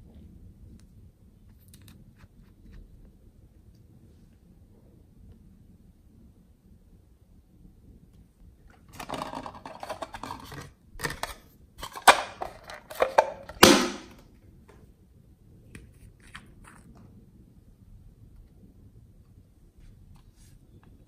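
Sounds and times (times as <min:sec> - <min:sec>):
plastic container rustling: 0:08.8 - 0:14.0.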